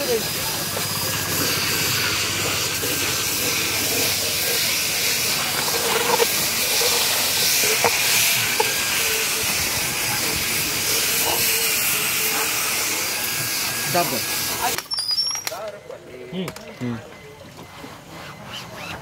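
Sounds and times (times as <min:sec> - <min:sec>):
rotary brush hissing on foam: 0:00.0 - 0:14.8.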